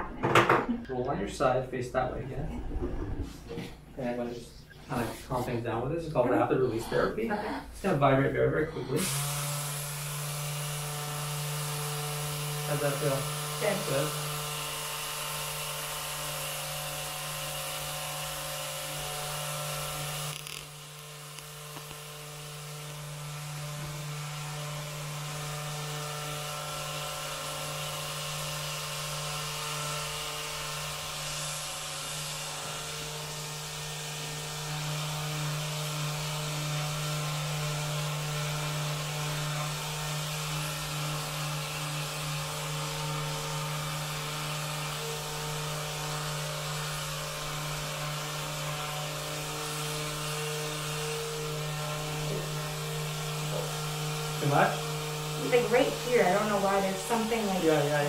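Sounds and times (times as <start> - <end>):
massage device buzzing: 6.5 - 58.0.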